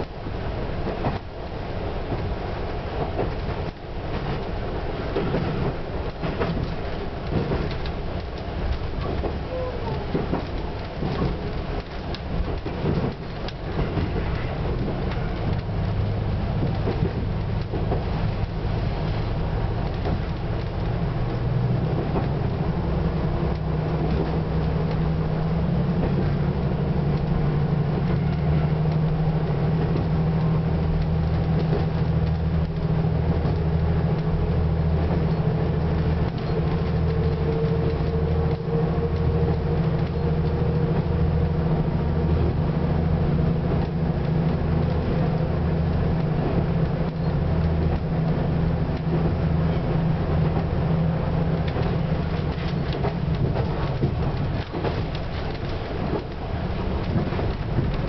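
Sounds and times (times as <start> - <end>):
railcar engine drone: 0.0 - 58.0
wheel noise on rails: 0.0 - 58.0.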